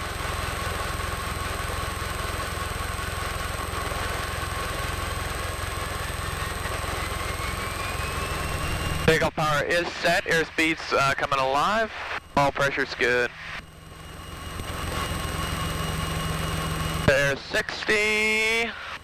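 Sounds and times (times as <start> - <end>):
airplane engine and propeller droning: 0.0 - 19.0
faint rising whine: 5.2 - 19.0.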